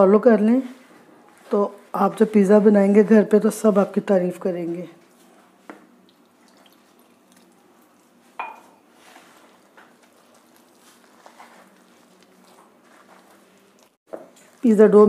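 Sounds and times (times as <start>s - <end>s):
hands mixing dough in bowl: 0.3s - 15.0s
ceramic mug clinking down: 8.4s - 8.8s.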